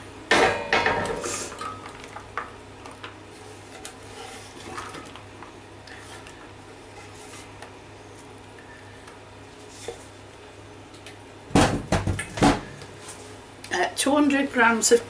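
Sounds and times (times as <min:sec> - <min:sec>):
kitchen items knocking and clattering: 0:00.3 - 0:01.9, 0:11.5 - 0:12.7.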